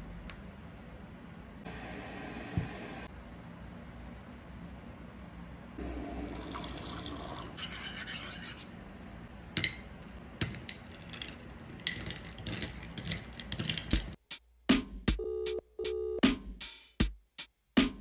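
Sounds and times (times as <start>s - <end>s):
powder pouring into a mug: 6.2s - 7.6s
ice cubes clinking in a mug: 6.4s - 7.5s, 10.4s - 14.0s
spoon stirring against a mug: 6.4s - 8.7s, 10.4s - 14.2s.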